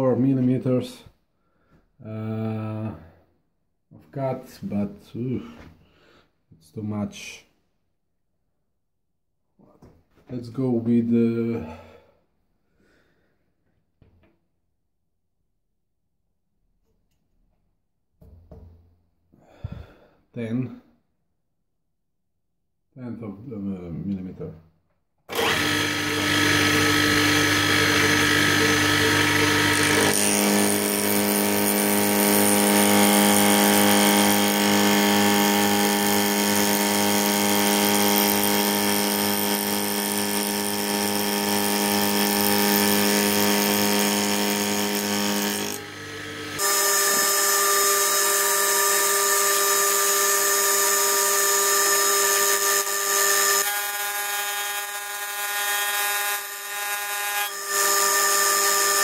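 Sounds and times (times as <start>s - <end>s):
end mill cutting steel: 25.3s - 55.8s.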